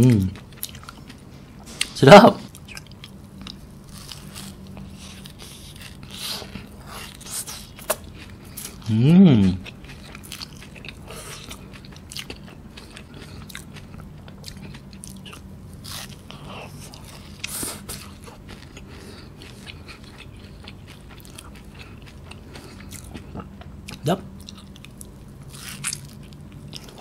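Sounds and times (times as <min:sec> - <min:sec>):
crunching and chewing pastry: 0:00.0 - 0:27.0.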